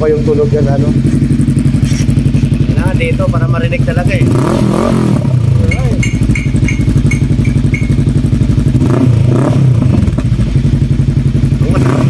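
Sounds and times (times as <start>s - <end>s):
motorcycle idling: 0.0s - 12.0s
short high beeps: 5.6s - 8.1s.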